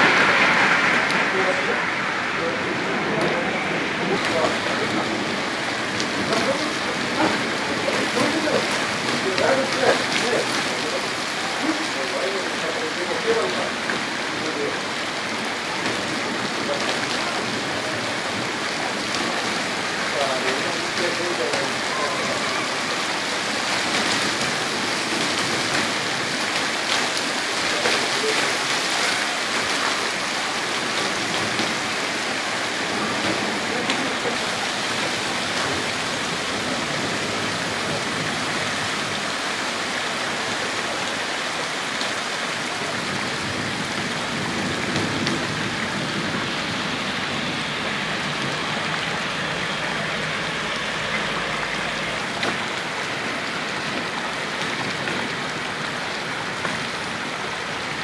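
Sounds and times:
heavy rain on pavement: 0.0s - 58.0s.

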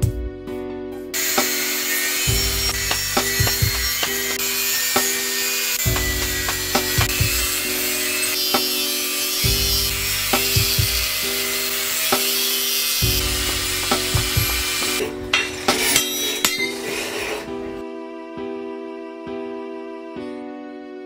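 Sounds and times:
background music with sustained notes: 0.0s - 21.0s
angle grinder cutting steel: 1.2s - 17.8s
hammer blows ringing on steel: 1.4s - 7.5s.

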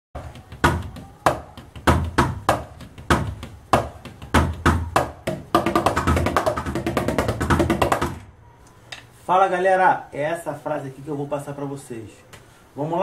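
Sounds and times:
drumsticks striking practice pads: 0.2s - 8.2s.

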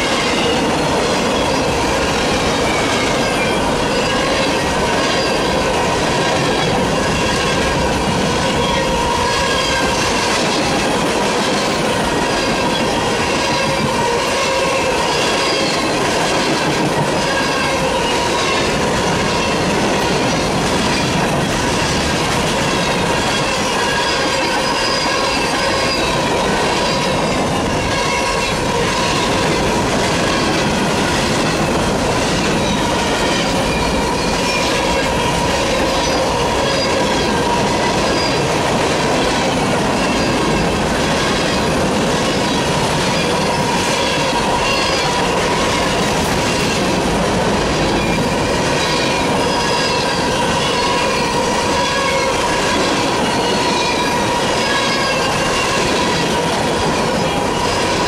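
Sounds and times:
freight train wheels rumbling: 0.0s - 58.0s
wheel squeal ringing: 23.2s - 29.6s.

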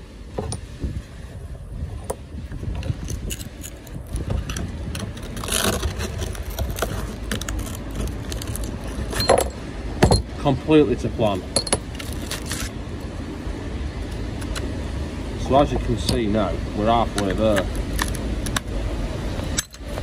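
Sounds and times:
wind rumble on microphone: 0.0s - 10.3s
metal tool scraping glass: 3.0s - 9.6s
glass shards clinking: 5.2s - 10.3s, 11.6s - 12.7s, 19.6s - 19.9s.

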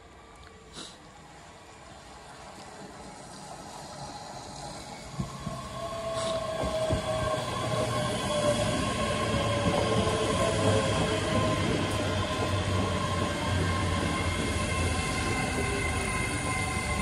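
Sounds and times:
train wheels rumbling on rails: 2.6s - 17.0s
train whine falling in pitch: 4.5s - 17.0s.

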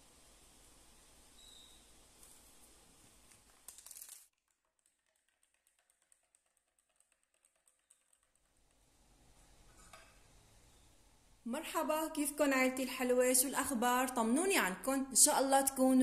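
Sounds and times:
low hiss: 0.0s - 3.7s.

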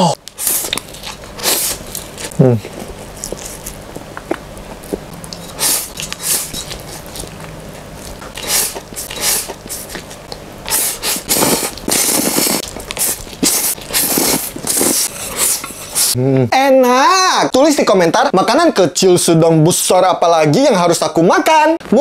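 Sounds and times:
wet noodle slurping: 0.3s - 3.6s, 5.3s - 16.2s
chewing: 0.3s - 16.2s.

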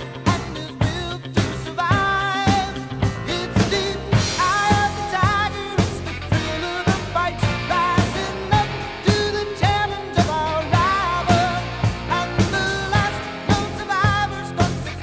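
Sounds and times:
drum beat: 0.0s - 15.0s
pop song with vocals: 0.0s - 15.0s.

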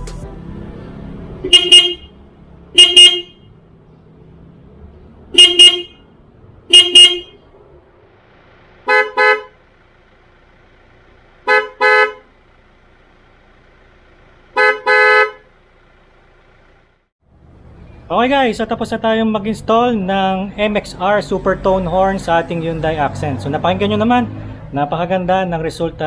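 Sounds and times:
car horn double toots: 1.4s - 3.6s, 5.3s - 6.1s, 6.7s - 7.4s, 8.8s - 9.6s, 11.4s - 12.3s, 14.5s - 15.5s.

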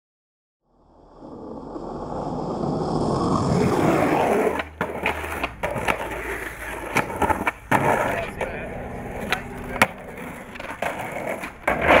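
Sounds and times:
skateboard wheels rolling on concrete: 0.7s - 12.0s
skateboard clacking: 3.6s - 12.0s.

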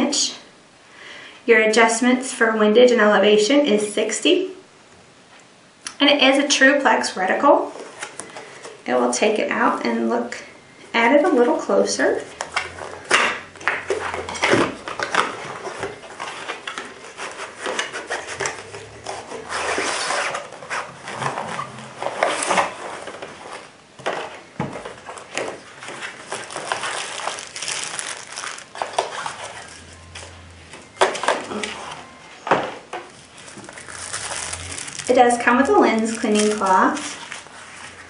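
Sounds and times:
cardboard scraping and rustling: 12.0s - 38.0s.

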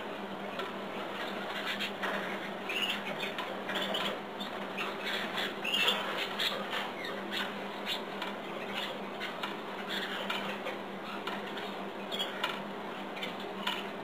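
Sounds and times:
low steady hum: 0.0s - 14.0s
canaries chirping and twittering: 0.5s - 14.0s.

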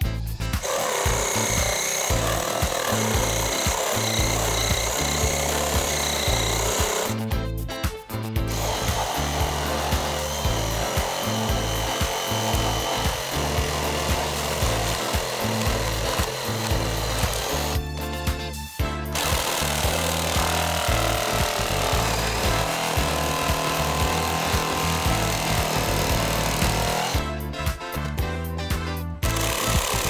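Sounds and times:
reciprocating saw cutting wood: 0.6s - 7.3s, 8.5s - 17.9s, 19.1s - 27.2s, 29.2s - 30.0s.

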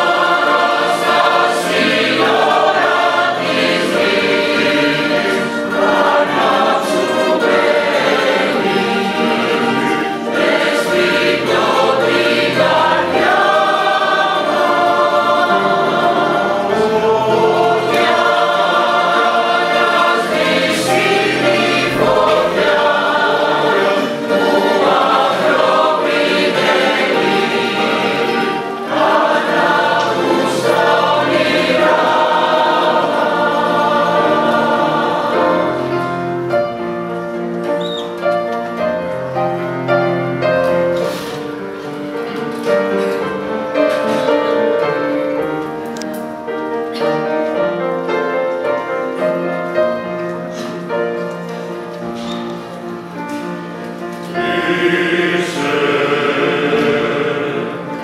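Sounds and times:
mandolins and guitars playing: 0.0s - 36.7s
mixed choir singing: 0.0s - 58.0s.

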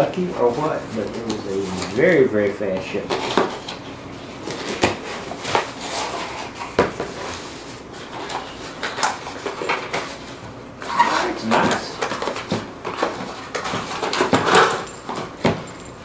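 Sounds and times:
cardboard rustling and scraping: 0.3s - 2.3s, 2.9s - 15.5s.

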